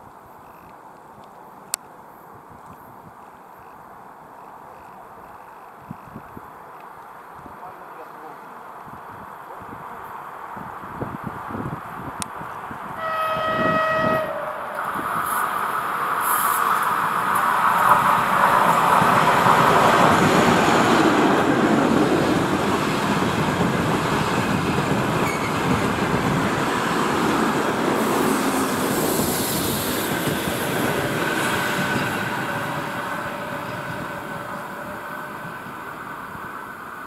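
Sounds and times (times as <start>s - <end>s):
train rumbling on rails: 8.0s - 37.0s.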